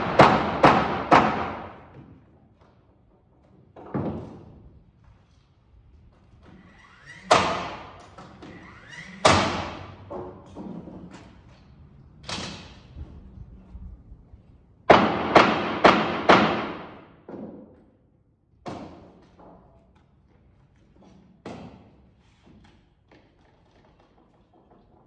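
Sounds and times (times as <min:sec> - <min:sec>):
hammer banging nails into wood: 0:00.0 - 0:02.2, 0:07.3 - 0:08.0, 0:09.3 - 0:10.8, 0:14.9 - 0:17.6.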